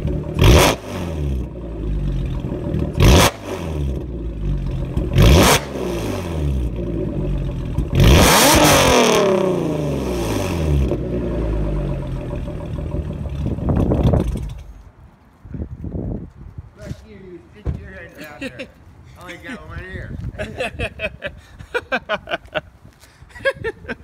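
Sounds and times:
car engine revving: 0.0s - 14.7s.

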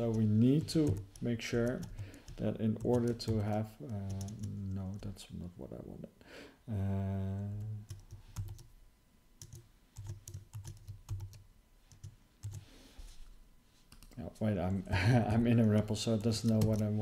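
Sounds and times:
man humming: 6.7s - 7.8s.

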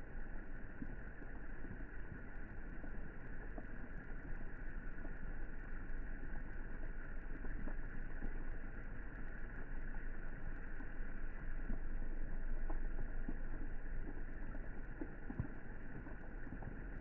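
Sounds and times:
rain falling on water: 0.0s - 17.0s
faint drop ticks: 0.3s - 17.0s.

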